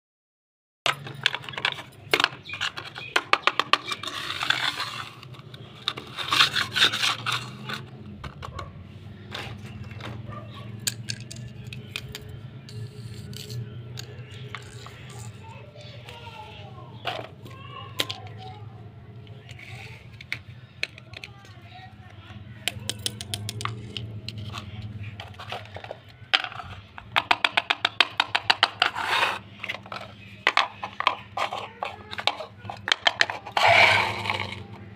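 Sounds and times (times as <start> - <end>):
plastic toys clicking on stone floor: 0.9 - 34.9
toy buttons clicking: 10.8 - 15.4.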